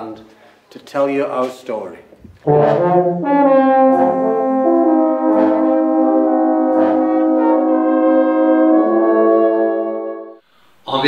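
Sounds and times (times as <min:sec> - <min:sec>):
brass band playing slow chords: 0:02.4 - 0:10.4.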